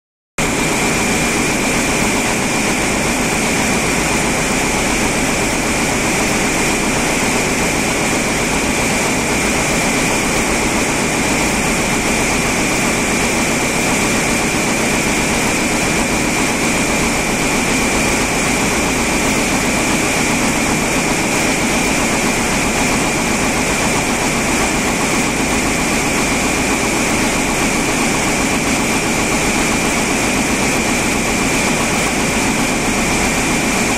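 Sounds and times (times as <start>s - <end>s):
loom running: 0.5s - 33.9s.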